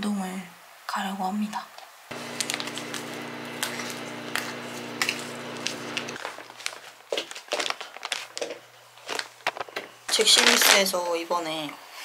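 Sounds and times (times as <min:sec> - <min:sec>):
steady low hum: 0:02.1 - 0:06.2
sachet crackling: 0:02.1 - 0:10.8
plastic bags rustling: 0:02.1 - 0:11.0.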